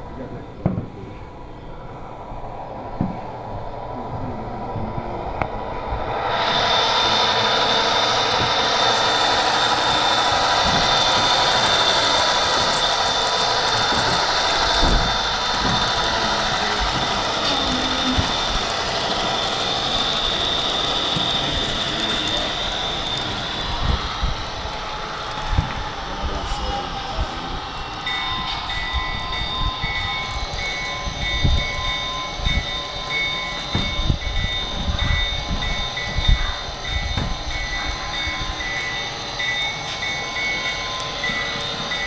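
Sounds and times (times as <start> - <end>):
high whine: 0.0 - 42.0
model train whirring: 5.3 - 42.0
low knocks: 33.7 - 34.2.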